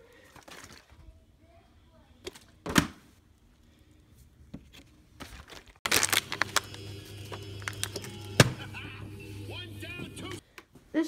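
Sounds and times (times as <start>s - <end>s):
plastic bottle crinkling: 0.2s - 1.0s, 5.2s - 8.1s.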